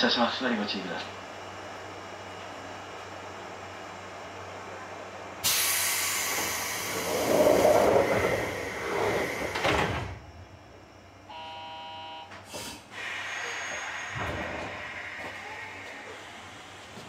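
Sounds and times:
compressed air hiss: 0:05.4 - 0:07.1, 0:12.5 - 0:15.6
train doors sliding shut: 0:05.4 - 0:10.5, 0:12.4 - 0:17.0.

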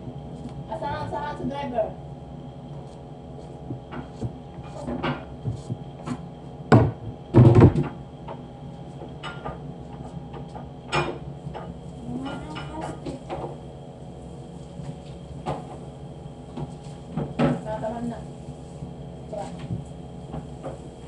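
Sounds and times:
steady hum: 0:00.0 - 0:21.0
kitchen knocks and bangs: 0:06.7 - 0:07.9.

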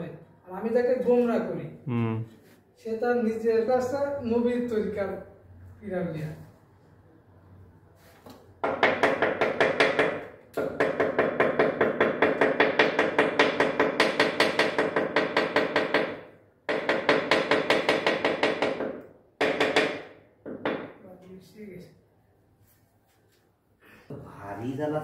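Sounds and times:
rapid tapping on ceramic tiles: 0:08.6 - 0:21.0.

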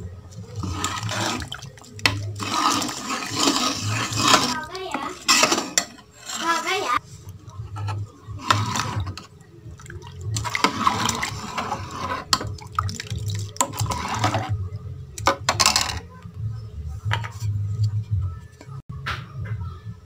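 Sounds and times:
ladle scraping a metal pot: 0:00.3 - 0:14.6
liquid sloshing in a pot: 0:00.3 - 0:14.6.

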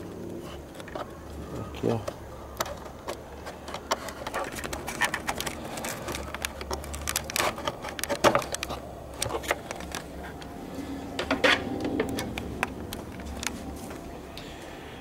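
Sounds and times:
plastic clicks and knocks: 0:02.0 - 0:10.5.

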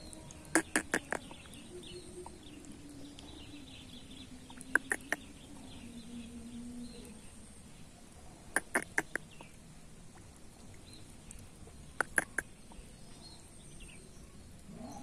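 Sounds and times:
faint bird calls: 0:00.0 - 0:07.3, 0:08.5 - 0:09.6, 0:11.9 - 0:14.0
low steady hum: 0:00.0 - 0:15.0
short sharp clucks: 0:00.5 - 0:01.3, 0:04.7 - 0:05.2, 0:08.6 - 0:09.3, 0:12.0 - 0:12.5.

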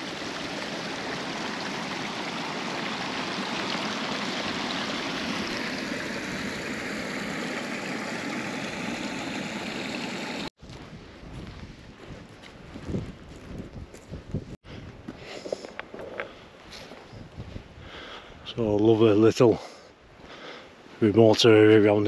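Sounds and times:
stream running: 0:00.0 - 0:10.5.

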